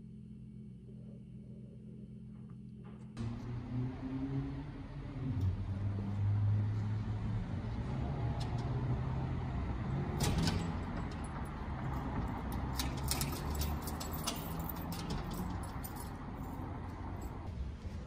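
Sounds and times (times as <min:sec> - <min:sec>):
street traffic hum: 0:03.2 - 0:18.0
metal grille door clinking: 0:10.1 - 0:16.7.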